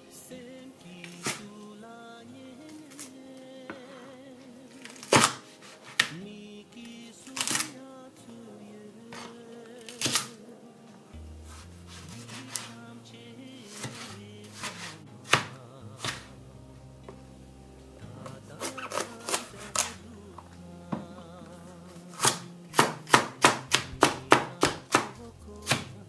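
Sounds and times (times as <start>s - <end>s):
background music with bass line: 11.1s - 26.0s
cleaver chopping on cutting board: 22.2s - 25.1s.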